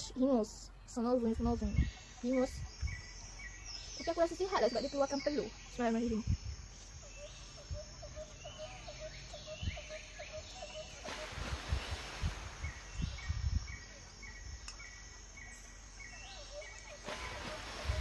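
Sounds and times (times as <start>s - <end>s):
hiss: 11.0s - 13.0s.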